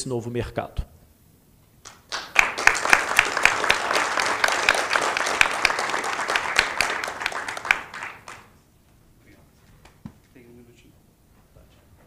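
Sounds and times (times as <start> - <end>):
audience applauding: 1.9 - 8.6.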